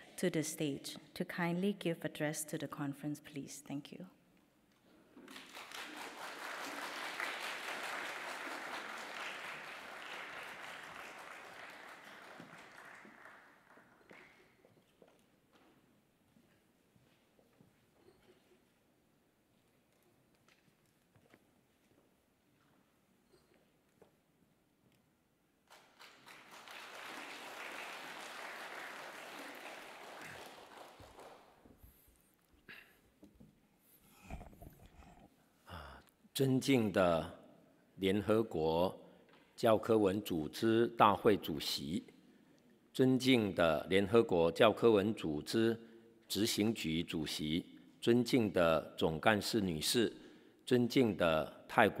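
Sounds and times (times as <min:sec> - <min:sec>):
audience applauding: 0:05.3 - 0:14.4, 0:25.7 - 0:31.6.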